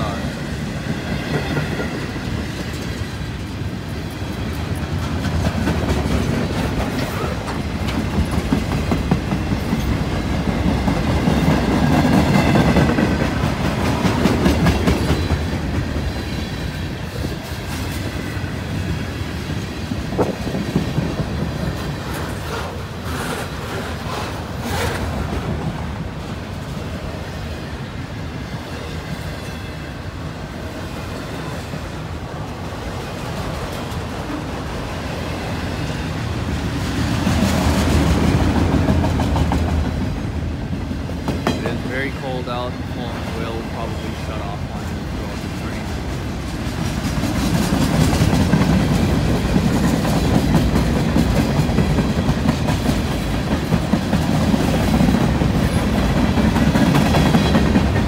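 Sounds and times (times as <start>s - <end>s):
steel wheels rumbling on rails: 0.0s - 58.0s.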